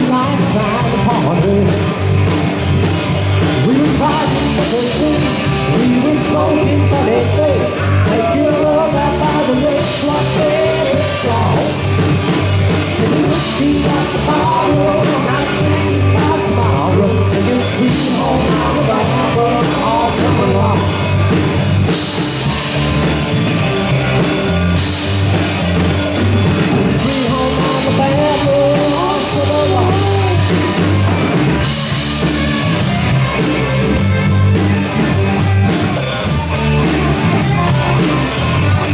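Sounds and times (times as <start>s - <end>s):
drum kit beat: 0.0s - 38.9s
rock band playing live: 0.0s - 38.9s.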